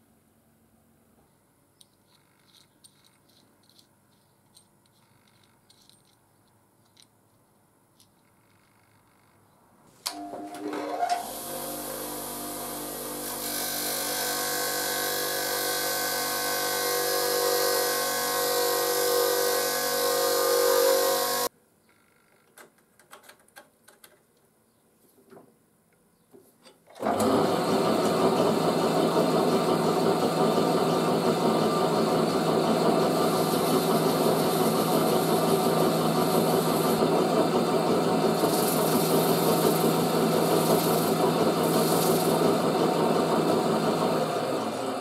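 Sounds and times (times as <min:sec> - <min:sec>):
bench grinder motor hum: 0:10.5 - 0:21.5, 0:27.0 - 0:45.0
grinding metal on wheel: 0:30.6 - 0:44.2.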